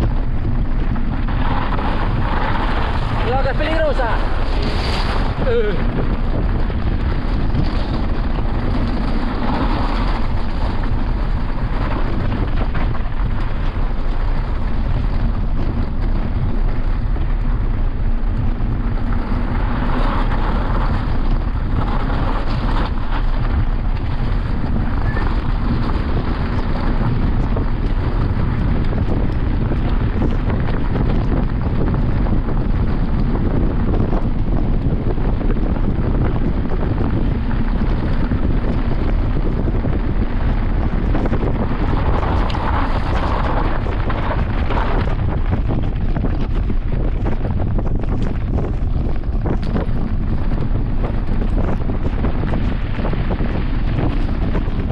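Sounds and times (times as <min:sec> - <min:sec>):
bike rumbling over rough trail: 0:00.0 - 0:54.9
wind rushing over microphone: 0:00.0 - 0:54.9.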